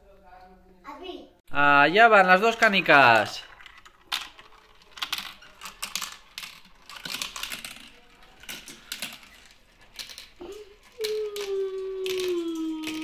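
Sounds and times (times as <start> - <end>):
marbles rattling down plastic run: 2.1 - 13.0.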